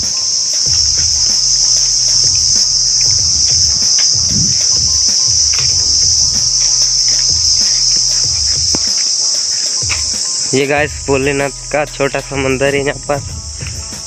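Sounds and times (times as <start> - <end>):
high-pitched insect chorus: 0.0 - 14.0
low thuds: 0.7 - 9.0.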